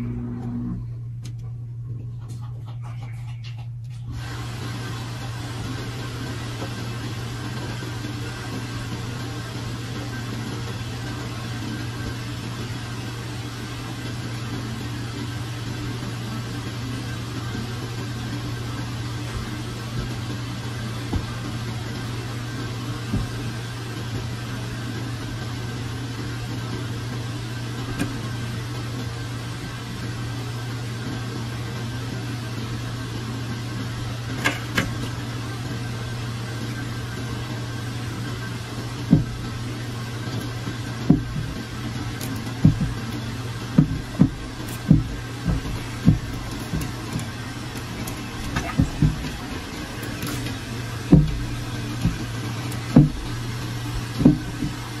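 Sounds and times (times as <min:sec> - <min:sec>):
aquarium filter humming: 0:00.0 - 0:55.0
dull low thumps: 0:18.5 - 0:24.9, 0:38.2 - 0:55.0
water sloshing in aquarium: 0:36.4 - 0:55.0
short knocks: 0:41.0 - 0:54.9.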